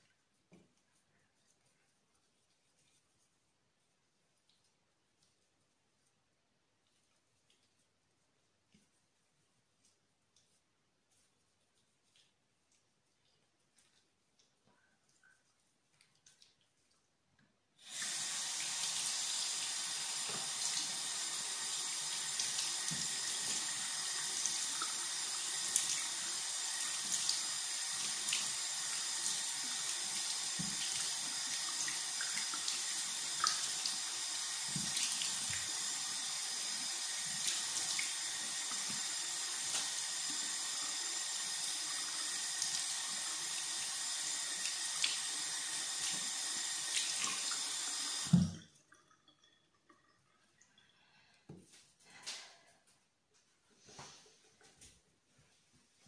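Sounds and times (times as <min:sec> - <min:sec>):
water running into sink: 0:17.8 - 0:51.1.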